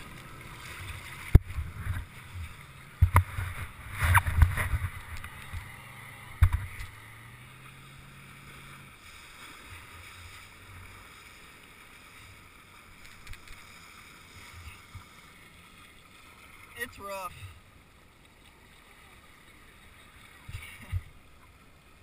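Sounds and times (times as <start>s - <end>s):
water splashing against camera: 0.0s - 11.4s
light wind: 0.0s - 22.0s
motorboat engine hum: 0.0s - 22.0s
water lapping: 0.0s - 22.0s.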